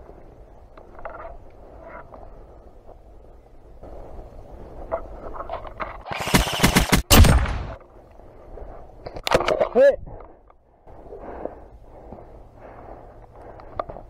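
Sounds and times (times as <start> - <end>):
airsoft rifle rapid burst: 6.1 - 7.7.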